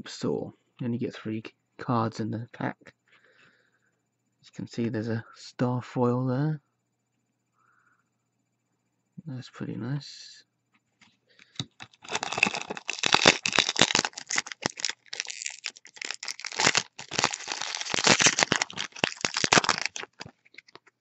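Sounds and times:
foil wrapper crinkling and tearing: 0:11.5 - 0:20.9.

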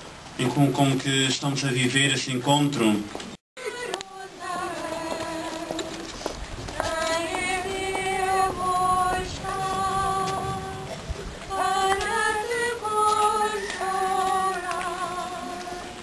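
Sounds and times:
woman singing a hymn: 0:03.6 - 0:16.0.

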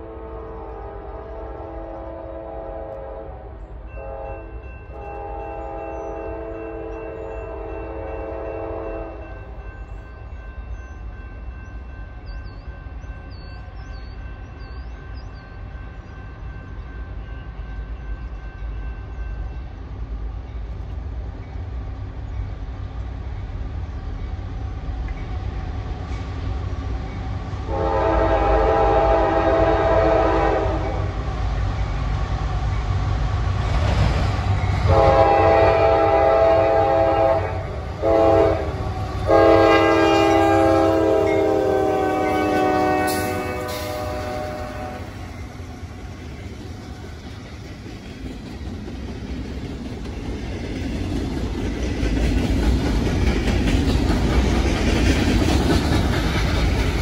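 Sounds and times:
train air horn blasts: 0:00.0 - 0:09.4, 0:27.7 - 0:31.2, 0:34.8 - 0:45.5.

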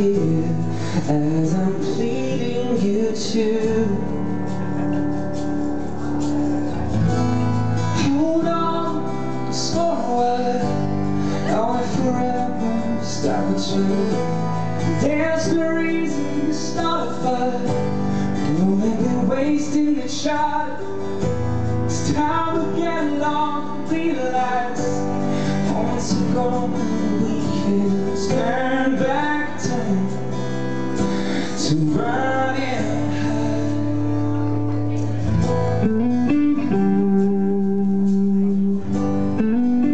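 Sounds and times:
man singing: 0:00.0 - 0:05.4, 0:06.1 - 0:39.9
keyboard accompaniment: 0:00.0 - 0:39.9
live band playing pop: 0:00.0 - 0:39.9.

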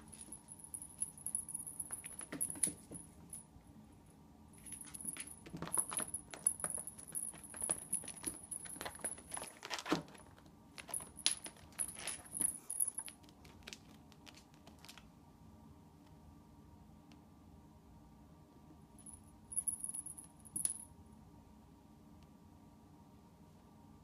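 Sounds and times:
small jingle bell tinkling: 0:00.0 - 0:03.5, 0:04.6 - 0:09.6, 0:10.8 - 0:13.2, 0:19.0 - 0:20.9
claws clicking and scrabbling: 0:04.6 - 0:15.1.

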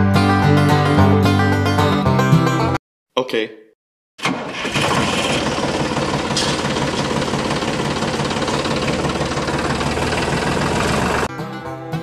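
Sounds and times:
tractor engine idling: 0:04.2 - 0:11.3.

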